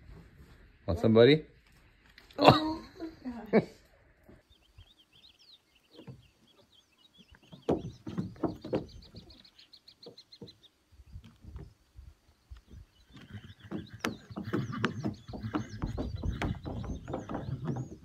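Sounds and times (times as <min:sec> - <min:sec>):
small birds chirping: 0:01.5 - 0:18.0
footsteps on wooden planks: 0:07.2 - 0:09.4, 0:12.6 - 0:18.0.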